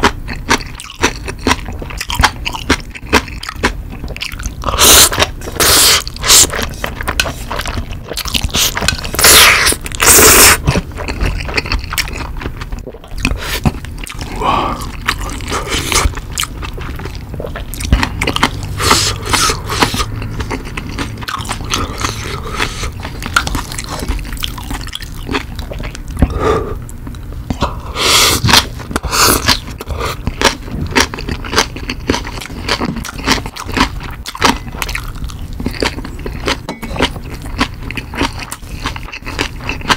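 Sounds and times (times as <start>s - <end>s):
chewing food: 0.0s - 27.8s, 28.4s - 39.9s
noodles slurped: 17.6s - 23.0s.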